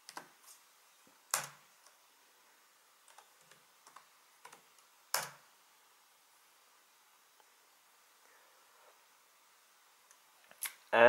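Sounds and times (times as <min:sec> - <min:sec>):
laptop keyboard typing: 0:03.0 - 0:05.4.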